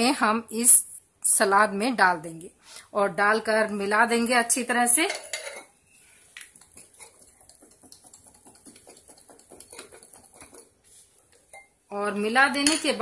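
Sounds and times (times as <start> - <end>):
food rattling in shaken bowl: 6.5 - 10.8.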